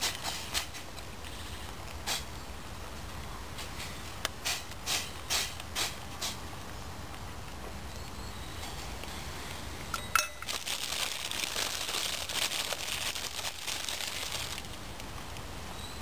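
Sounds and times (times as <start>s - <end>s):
utensil clinking on metal can: 10.0s - 10.6s
plastic bag crinkling: 10.0s - 14.9s.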